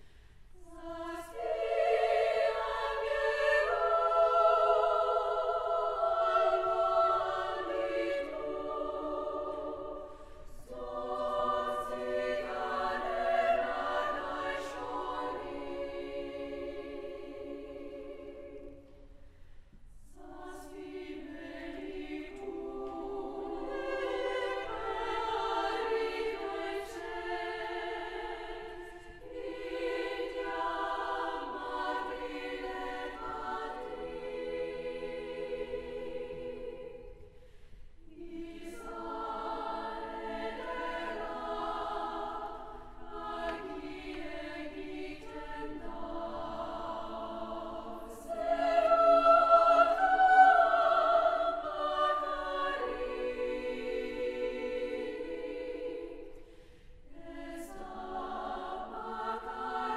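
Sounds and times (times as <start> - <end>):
women's choir singing: 0.0 - 59.9.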